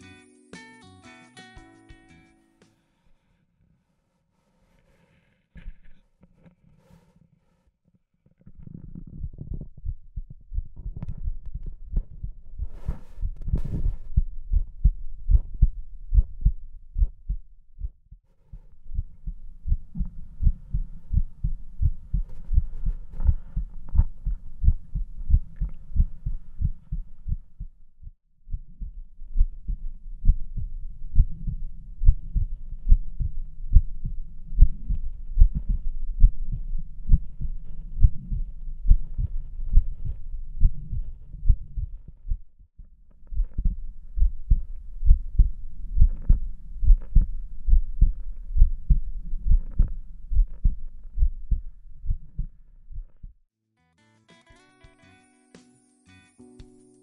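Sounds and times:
heartbeat through stethoscope: 8.7s - 53.4s.

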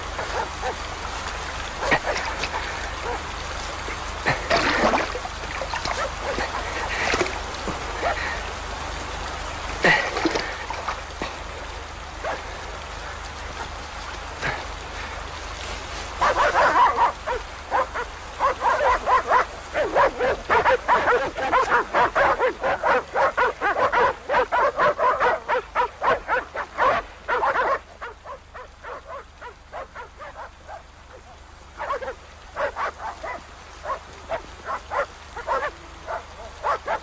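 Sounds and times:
dog barking rapidly: 0.2s - 0.9s, 16.2s - 30.9s, 31.8s - 37.0s.

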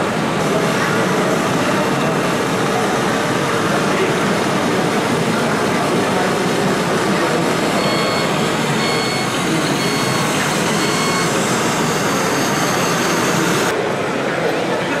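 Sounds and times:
model tractors running: 0.0s - 13.7s
short high beeps: 7.6s - 13.7s.

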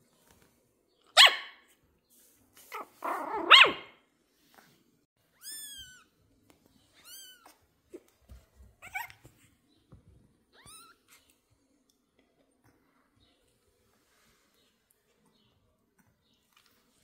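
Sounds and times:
puppy barking: 1.1s - 1.7s, 2.7s - 4.0s
puppy high cries: 8.8s - 9.2s.

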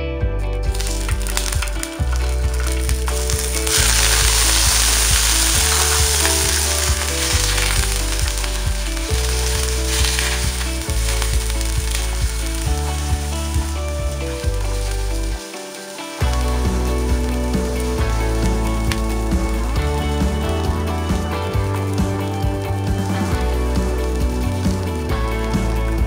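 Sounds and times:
shrimp sizzling in oil: 0.7s - 21.5s.

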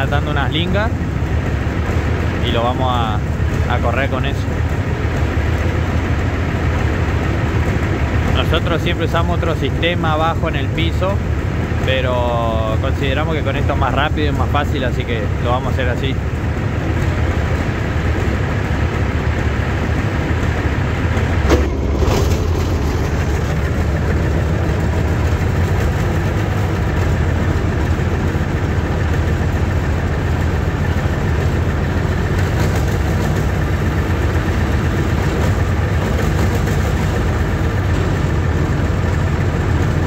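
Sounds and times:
engine idling: 0.0s - 40.0s
metal clank: 21.4s - 26.0s.

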